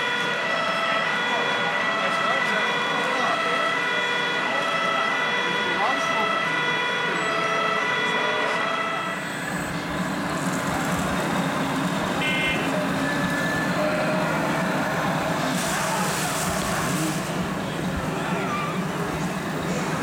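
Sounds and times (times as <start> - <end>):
short tone: 12.2 - 13.9.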